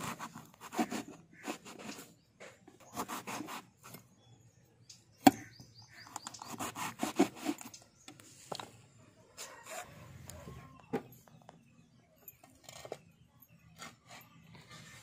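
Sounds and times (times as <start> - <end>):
knife slicing and scraping: 0.0 - 2.2, 2.8 - 4.0, 6.3 - 7.8.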